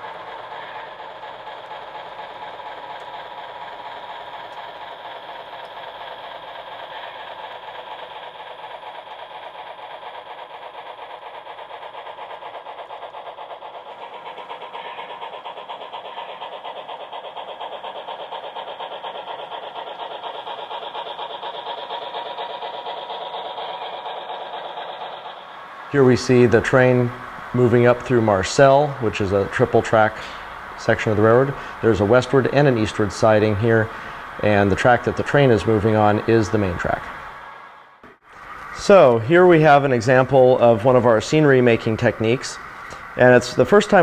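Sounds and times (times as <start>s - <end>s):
model train running: 0.0s - 44.0s.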